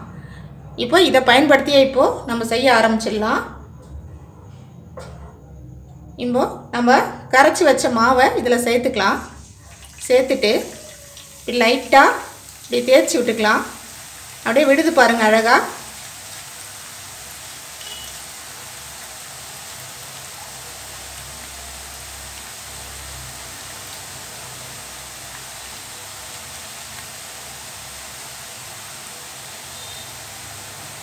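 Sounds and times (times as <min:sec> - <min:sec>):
hot oil sizzling: 0:07.5 - 0:31.0.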